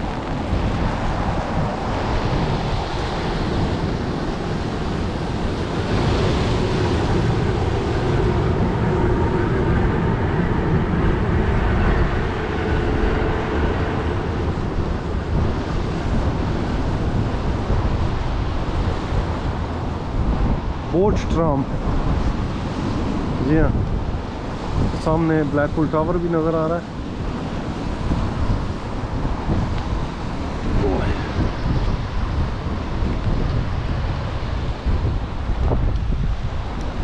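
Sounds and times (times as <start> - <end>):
tram passing: 0.0 - 20.1
wind buffeting microphone: 0.0 - 37.0
heavy rain: 27.1 - 37.0.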